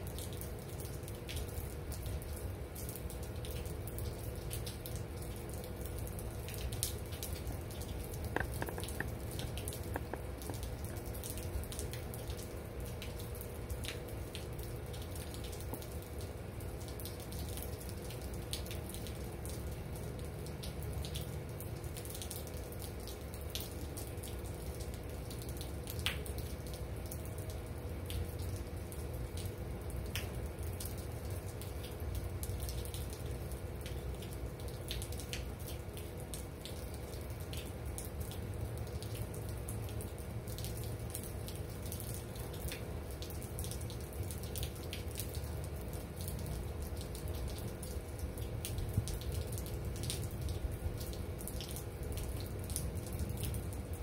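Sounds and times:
steady rain falling: 0.0 - 54.0
drops tapping and dripping: 3.4 - 17.3.

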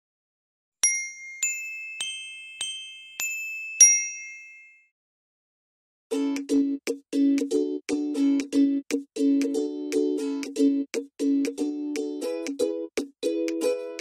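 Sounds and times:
bell-like chime notes: 0.8 - 4.9
plucked ukulele tune: 6.1 - 14.0.

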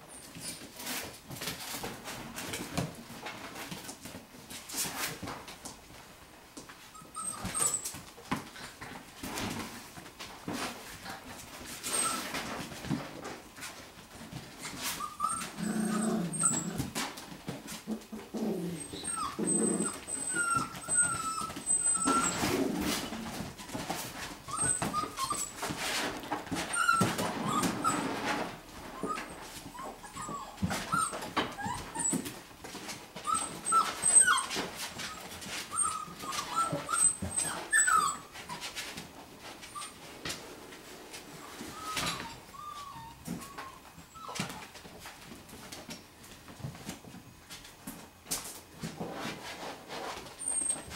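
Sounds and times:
puppies whimpering and squeaking: 0.1 - 1.1, 6.9 - 9.6, 10.6 - 40.4, 41.3 - 44.9, 49.2 - 50.9.

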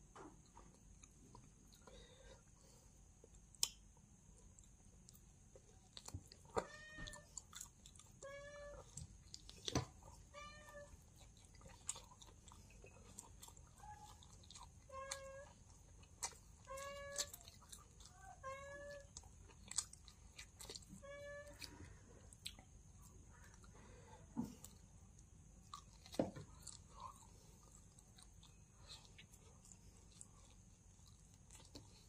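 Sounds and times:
faint chewing: 0.2 - 32.0
cat meowing: 6.5 - 7.3, 8.2 - 9.0, 10.3 - 11.0, 16.6 - 19.1.

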